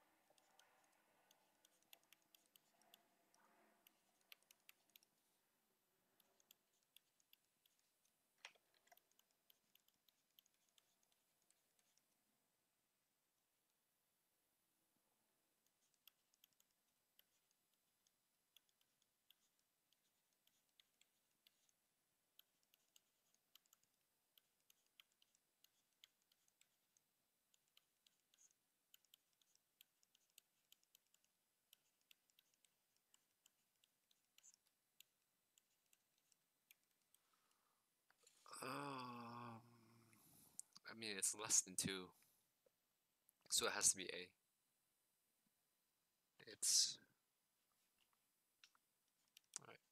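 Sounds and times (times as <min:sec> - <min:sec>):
stylus tapping on tablet: 0:00.0 - 0:05.2, 0:15.7 - 0:37.2.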